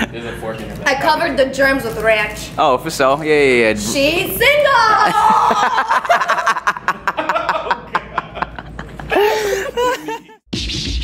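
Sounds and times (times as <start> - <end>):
people laughing: 4.8 - 10.4.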